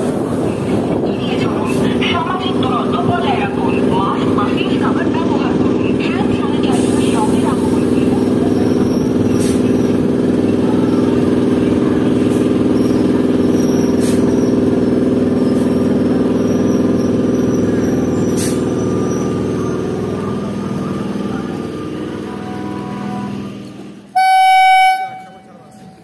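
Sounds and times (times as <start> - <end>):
electric train hum and rumble: 0.0 - 26.0.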